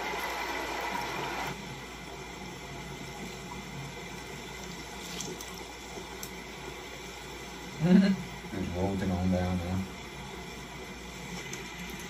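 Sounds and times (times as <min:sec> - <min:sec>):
watery rushing noise: 0:00.0 - 0:01.6.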